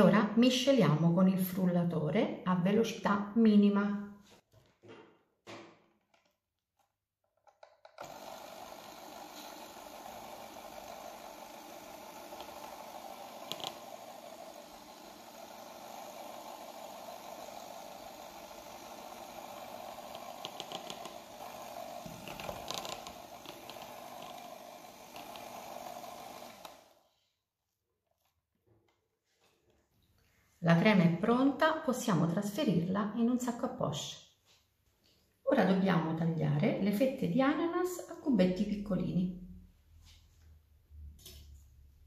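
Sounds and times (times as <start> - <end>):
electric hand mixer whisking: 7.6 - 27.1.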